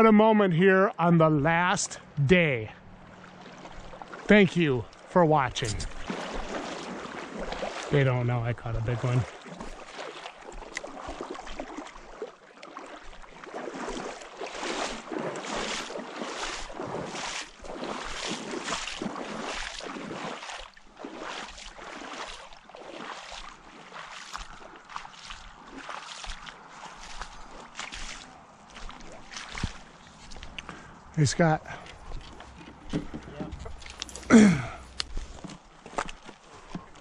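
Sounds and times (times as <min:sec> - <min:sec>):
footsteps on mud and leaves: 0:05.6 - 0:08.0, 0:13.0 - 0:31.1, 0:31.7 - 0:37.0.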